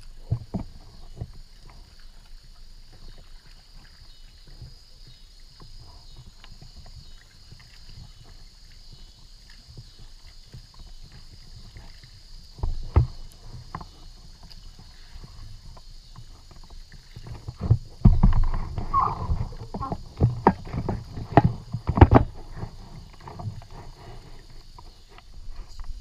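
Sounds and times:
paddle splashing water: 0:00.0 - 0:26.0
paddle knocking against boat: 0:12.5 - 0:14.9, 0:15.6 - 0:24.0.

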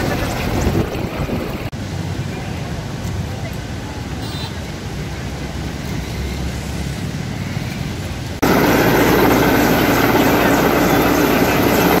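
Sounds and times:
helicopter flying overhead: 0:00.0 - 0:01.7, 0:08.4 - 0:12.0.

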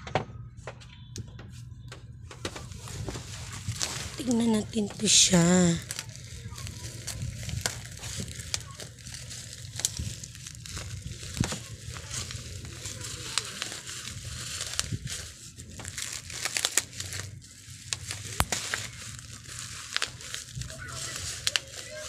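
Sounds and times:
plastic wrapping crinkling: 0:02.4 - 0:22.0
scissors cutting plastic: 0:02.5 - 0:22.0.

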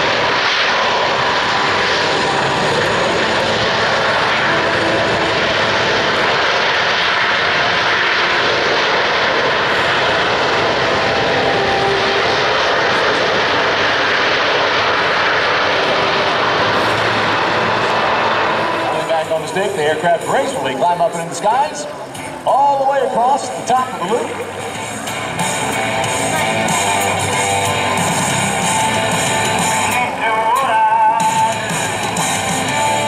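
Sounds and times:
jet engines roaring: 0:00.0 - 0:33.0.

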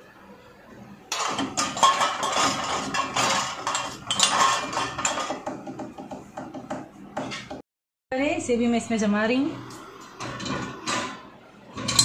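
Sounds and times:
dishes clattering in dishwasher rack: 0:01.1 - 0:07.6, 0:10.1 - 0:12.0.

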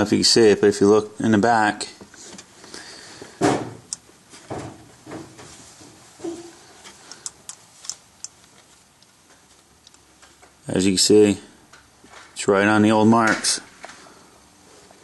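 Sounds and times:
soft knocks and rustles: 0:03.3 - 0:07.0.

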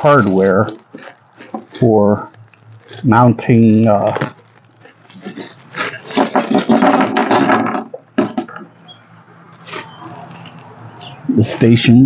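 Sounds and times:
plastic bag crinkling: 0:00.1 - 0:07.6.

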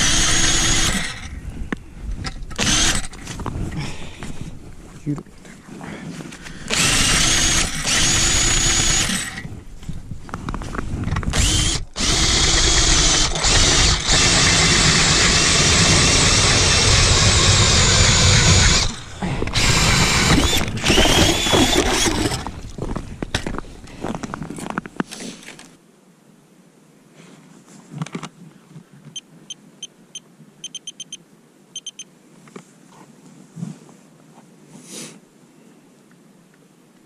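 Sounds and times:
drill motor whine: 0:00.0 - 0:01.3, 0:02.6 - 0:03.1, 0:06.7 - 0:09.4, 0:11.4 - 0:22.4
auger blade grinding through ice: 0:06.7 - 0:09.5, 0:11.3 - 0:22.6
auger scraping in slushy hole: 0:14.2 - 0:22.8.

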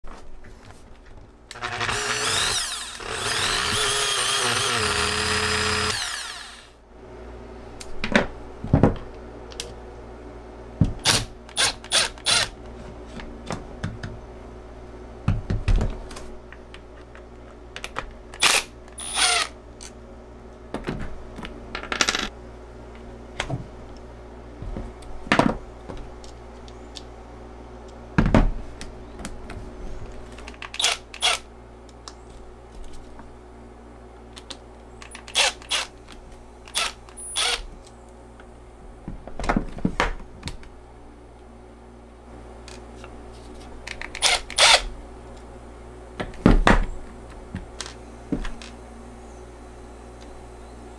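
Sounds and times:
angle grinder running: 0:01.6 - 0:06.8.

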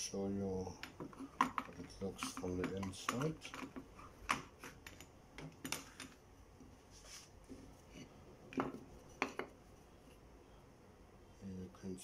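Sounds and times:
hard objects clicking and knocking: 0:00.7 - 0:06.2, 0:08.5 - 0:09.6.

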